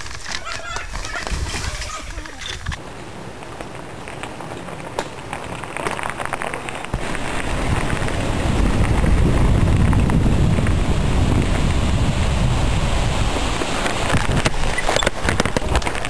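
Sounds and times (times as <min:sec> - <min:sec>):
bike tyres crunching on rocks: 0:00.0 - 0:16.0
tyres rolling on gravel: 0:00.0 - 0:16.0
wind buffeting microphone: 0:00.7 - 0:02.8, 0:06.9 - 0:16.0.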